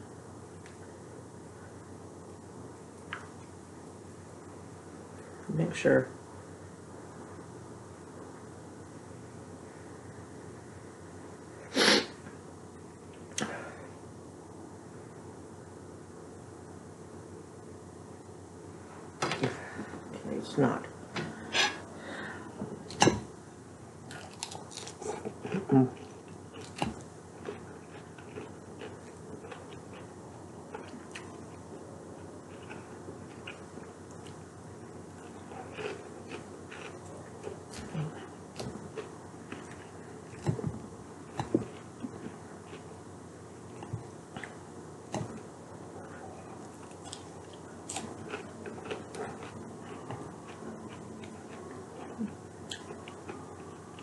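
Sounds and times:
moist chewing with crunches: 0:24.1 - 0:30.1, 0:35.1 - 0:43.0, 0:46.0 - 0:54.0.

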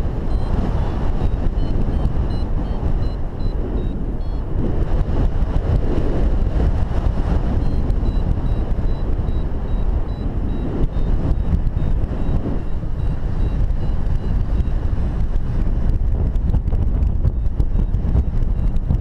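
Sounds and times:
wind buffeting microphone: 0:00.0 - 0:19.0
short high beeps: 0:00.3 - 0:00.6, 0:01.5 - 0:03.6.

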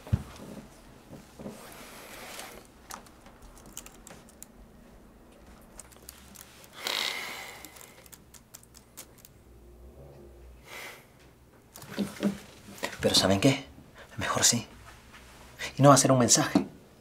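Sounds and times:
laptop keyboard clicks: 0:03.0 - 0:04.5.

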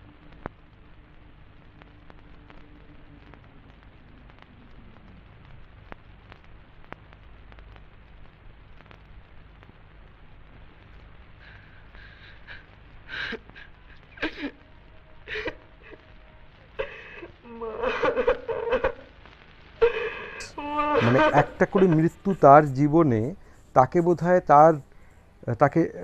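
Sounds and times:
old film soundtrack hiss: 0:00.0 - 0:26.0
young man sobbing: 0:11.6 - 0:19.1, 0:19.8 - 0:23.1
faint whimpering: 0:11.8 - 0:19.1, 0:19.8 - 0:22.7.

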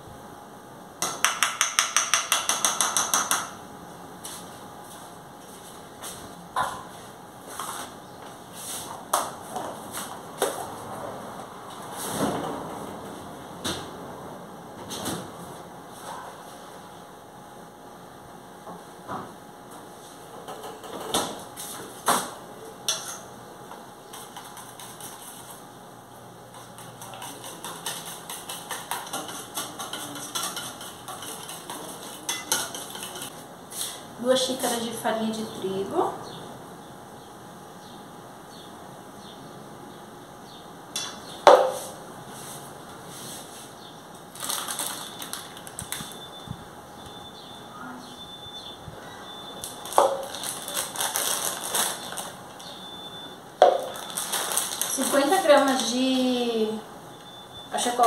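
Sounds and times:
cup knocking on stone counter: 0:01.0 - 0:03.5
wire whisk clinking in metal bowl: 0:27.0 - 0:33.3
plastic packet crinkling: 0:44.3 - 0:46.1, 0:49.6 - 0:52.6, 0:53.7 - 0:56.0.

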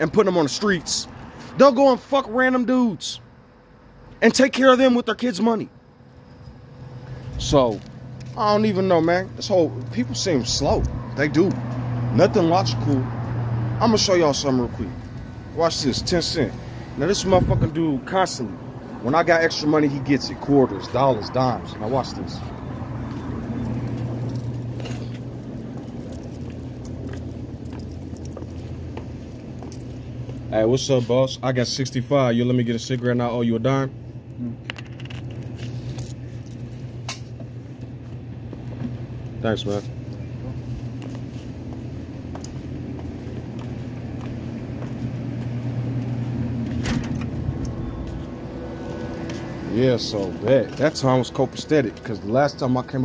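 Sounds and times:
coins jingling: 0:06.1 - 0:09.4, 0:23.6 - 0:28.4, 0:34.5 - 0:37.5
steady low hum: 0:13.2 - 0:53.0.

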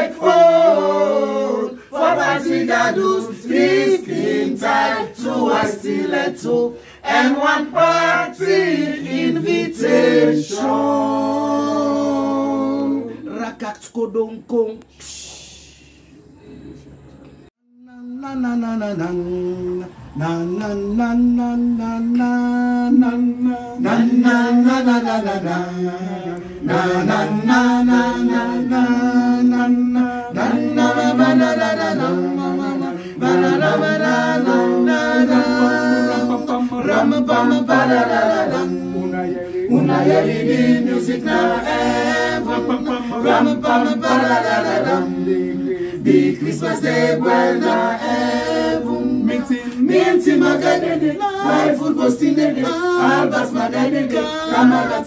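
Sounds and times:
group singing a cappella: 0:00.0 - 0:14.1, 0:17.7 - 0:55.0.

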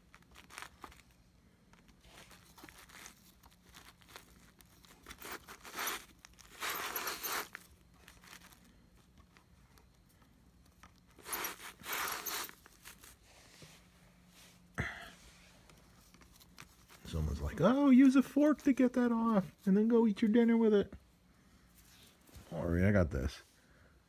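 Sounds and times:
rustling: 0:00.0 - 0:20.4
hands scraping hair off brushroll: 0:11.2 - 0:13.1.

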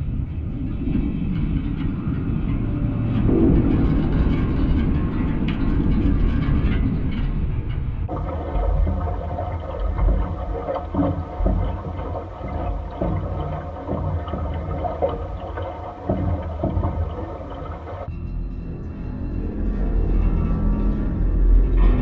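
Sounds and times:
low rumbling drone of wires: 0:00.0 - 0:22.0
irregular knocks: 0:08.1 - 0:18.1.

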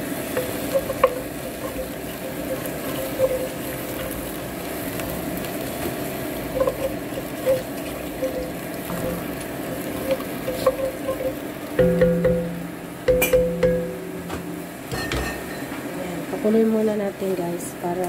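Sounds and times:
wine and onions sizzling: 0:00.0 - 0:18.0
wooden spatula stirring: 0:00.3 - 0:12.4.

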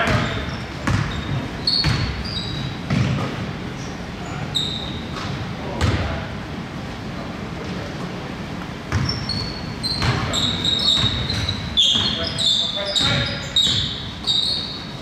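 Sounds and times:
basketball bouncing on hardwood floor: 0:00.0 - 0:02.3, 0:02.9 - 0:03.3, 0:08.9 - 0:09.2, 0:10.0 - 0:10.3, 0:10.9 - 0:12.2
shoe squeaks on court: 0:00.0 - 0:03.2, 0:03.8 - 0:05.3, 0:08.9 - 0:15.0.

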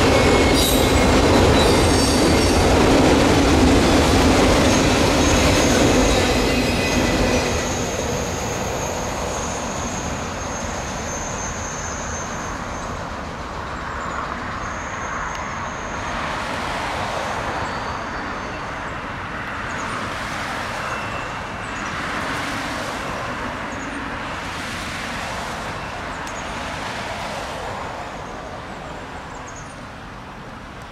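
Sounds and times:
freight train rumbling by: 0:00.0 - 0:14.9.

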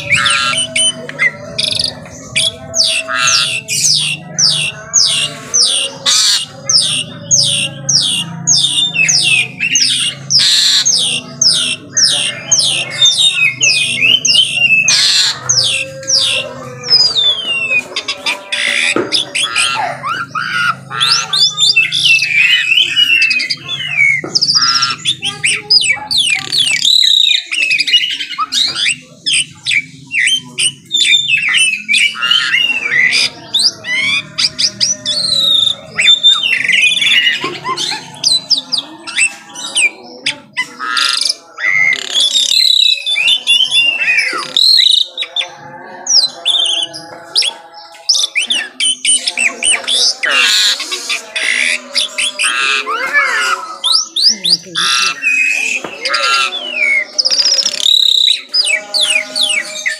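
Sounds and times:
bird singing whistles: 0:20.4 - 0:37.5, 0:41.1 - 0:45.2, 0:53.8 - 0:59.9.

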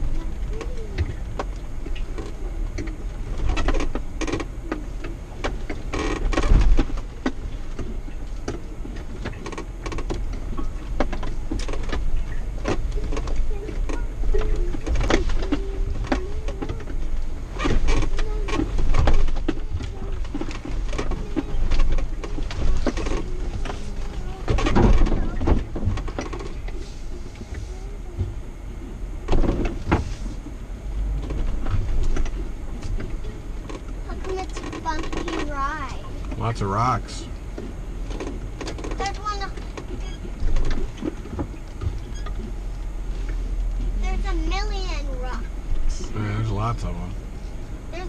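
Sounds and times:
vehicle body knocks and rattles: 0:00.0 - 0:26.8, 0:29.2 - 0:36.6
vehicle engine pulling at low speed: 0:00.0 - 0:48.0.

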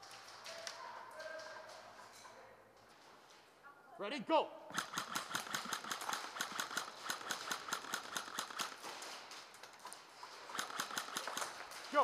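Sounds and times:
airsoft guns firing: 0:04.7 - 0:09.0, 0:10.5 - 0:12.0.

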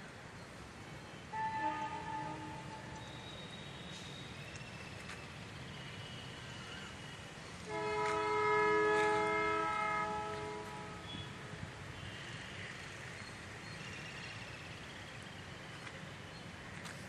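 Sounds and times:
train horn chord: 0:01.3 - 0:03.0, 0:07.6 - 0:11.4.

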